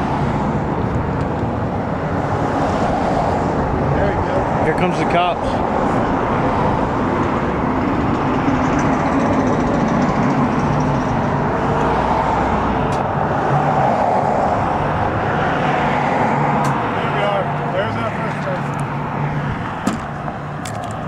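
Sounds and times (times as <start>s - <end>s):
highway traffic: 0.0s - 21.0s.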